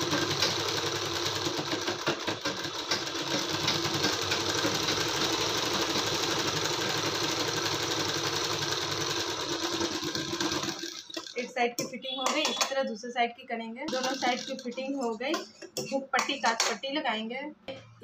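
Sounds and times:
sewing machine running: 0.0s - 11.4s, 13.9s - 14.8s.

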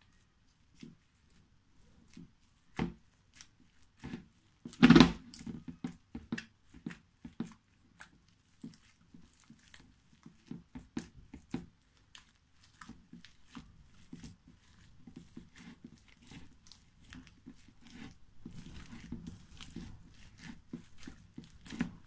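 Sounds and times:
slime squishing and squelching: 0.1s - 22.0s.

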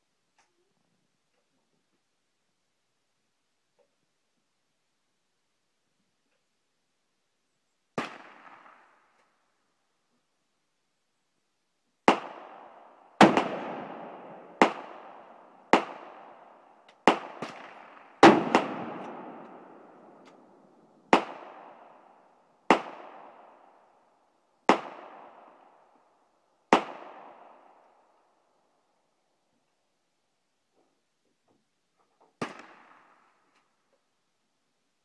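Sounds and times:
faint gunshots: 8.0s - 9.1s, 12.1s - 22.0s, 22.7s - 23.6s, 24.7s - 25.6s, 26.7s - 27.8s, 32.4s - 33.4s
gunshots with long echo: 8.0s - 9.2s, 12.0s - 26.1s, 26.7s - 28.3s, 32.4s - 33.5s.

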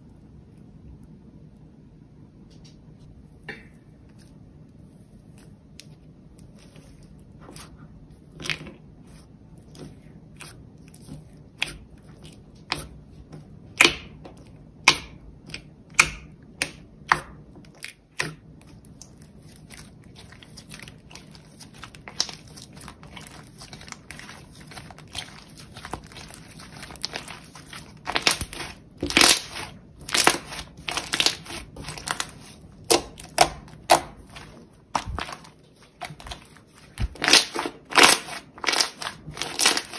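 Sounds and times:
slime squeezed by hand crackling: 19.5s - 39.9s.

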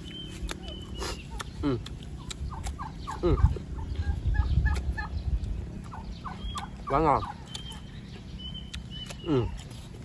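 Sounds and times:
low rumble: 1.6s - 9.0s.

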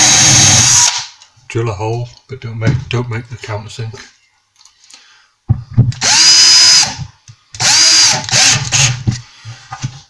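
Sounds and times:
cordless drill spinning: 0.0s - 1.0s, 6.0s - 7.0s, 7.6s - 9.0s.

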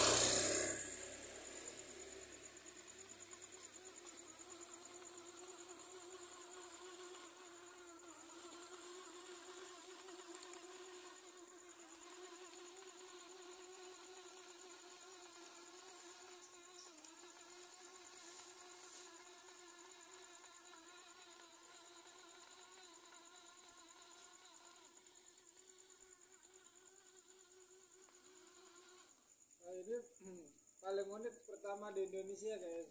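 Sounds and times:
high fast-pulsing trill: 0.0s - 2.5s
small electric motors buzzing: 0.0s - 29.5s.

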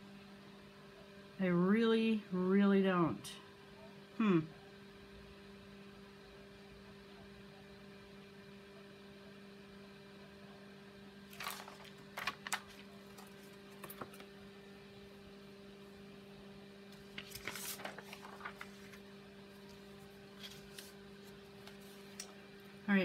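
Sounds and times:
faint electrical hum: 0.0s - 23.0s
paper rustling and tapping: 11.3s - 14.3s, 17.0s - 19.0s.

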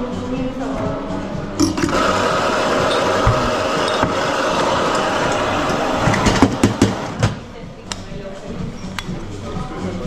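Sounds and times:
coffee grinder motor running: 1.7s - 6.0s.

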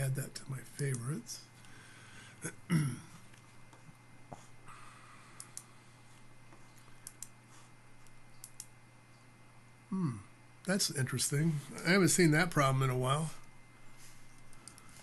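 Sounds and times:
low steady hum: 0.0s - 15.0s
computer mouse clicks: 5.4s - 5.7s, 7.0s - 7.4s, 8.0s - 8.8s, 14.4s - 14.9s.

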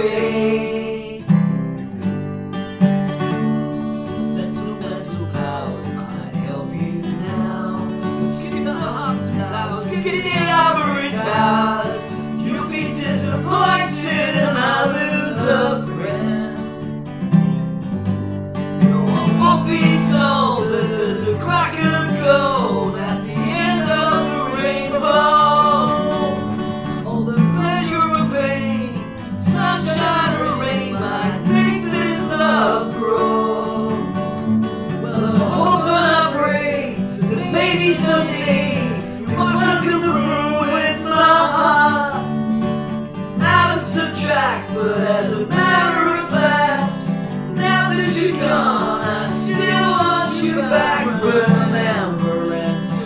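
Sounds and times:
acoustic guitar accompaniment: 0.0s - 53.0s
sliding melody line: 18.8s - 34.0s.

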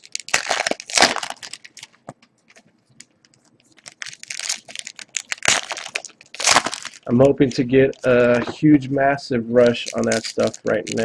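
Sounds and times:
foil wrapper crinkling and tearing: 0.0s - 8.5s, 9.6s - 11.0s.

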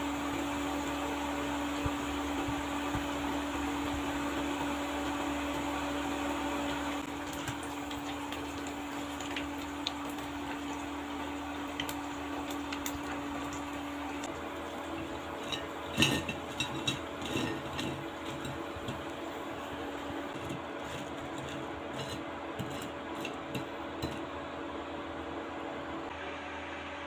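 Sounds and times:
background hiss and hum: 0.0s - 27.0s
clatter onto ceramic plate: 15.4s - 19.1s.

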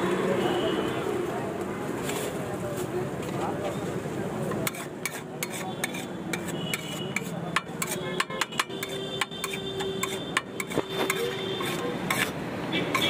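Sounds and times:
steel spatula scraping a griddle: 4.5s - 13.0s.

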